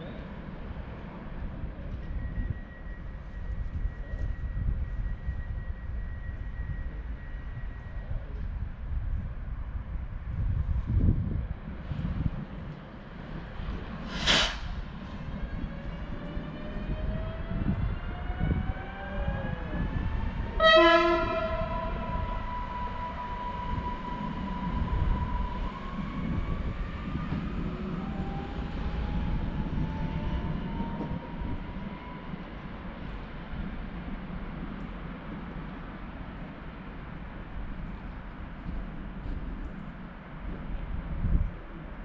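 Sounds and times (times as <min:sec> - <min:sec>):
train rumble: 0:00.0 - 0:42.0
air hiss: 0:14.0 - 0:14.9
train horn blast: 0:20.6 - 0:22.4.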